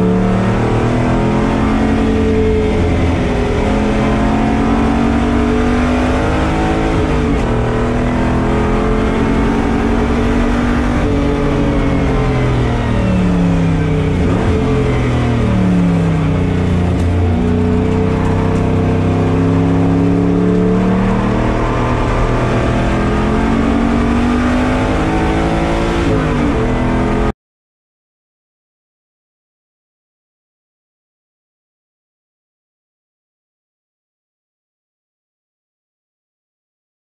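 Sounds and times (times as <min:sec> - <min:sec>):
race car engine revving: 0:00.0 - 0:27.3.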